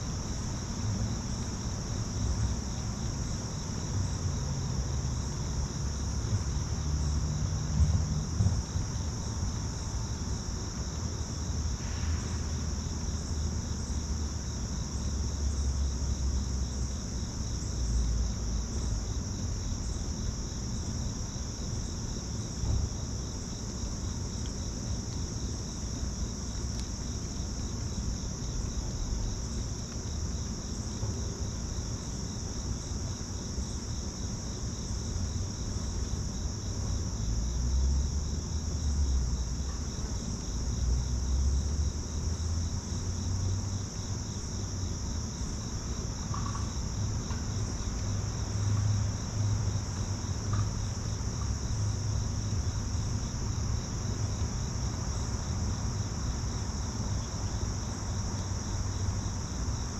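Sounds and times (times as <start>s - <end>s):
insect chorus high trill: 45.3s - 46.9s.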